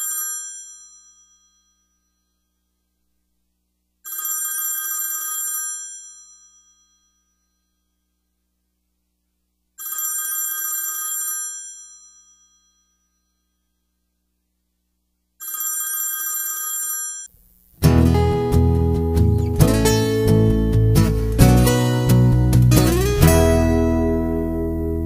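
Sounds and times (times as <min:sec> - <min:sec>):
telephone bell ringing: 0:00.0 - 0:01.9, 0:04.0 - 0:07.4, 0:09.8 - 0:13.4, 0:15.4 - 0:17.3.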